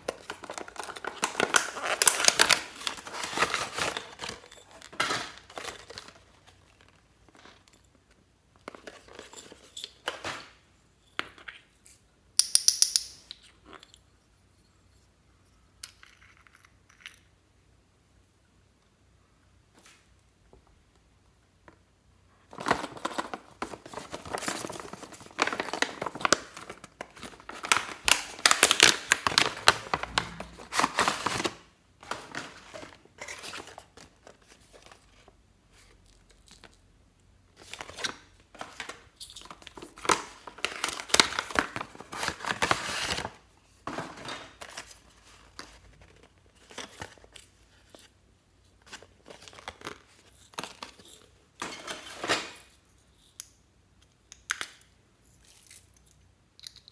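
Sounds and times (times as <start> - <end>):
plastic packaging crinkling: 0.0 - 7.8, 22.5 - 36.7, 37.6 - 43.4.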